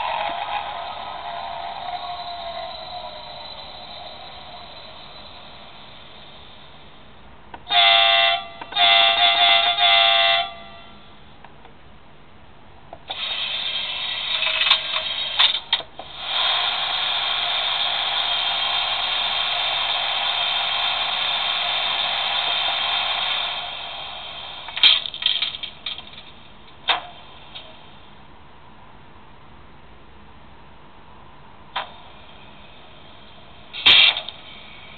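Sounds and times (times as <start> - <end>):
model train horn: 7.7 - 11.1.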